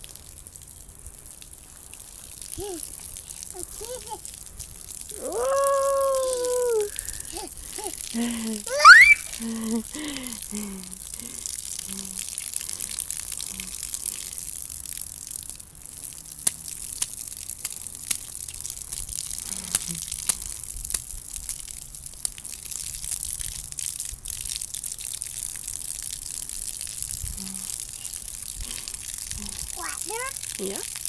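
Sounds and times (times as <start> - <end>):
water jet hissing: 5.0 - 13.0.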